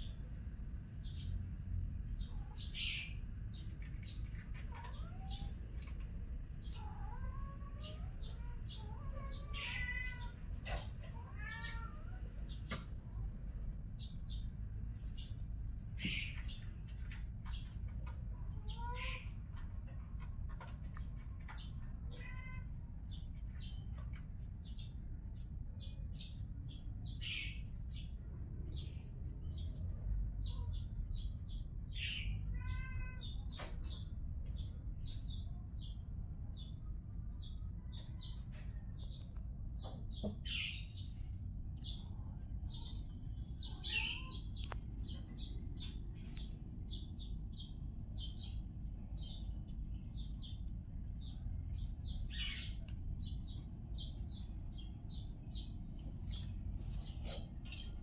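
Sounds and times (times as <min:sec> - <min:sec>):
small birds chirping: 0:00.0 - 0:58.0
steady low rumble: 0:40.4 - 0:58.0.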